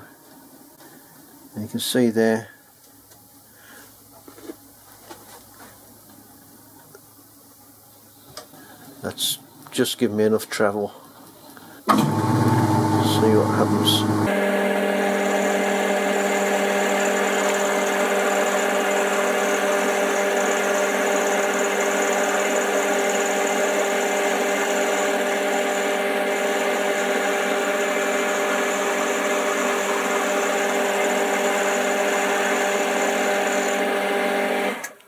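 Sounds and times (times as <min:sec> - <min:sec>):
lathe motor humming with a whine: 0:11.9 - 0:35.0.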